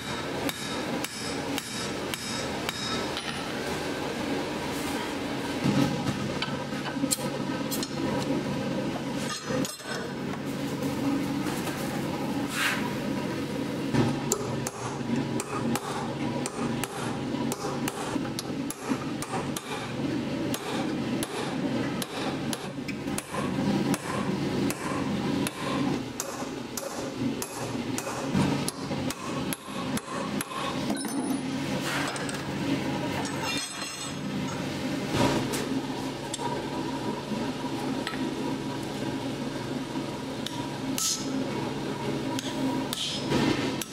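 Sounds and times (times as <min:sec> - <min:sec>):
hammer striking steel on anvil: 0:00.0 - 0:03.4.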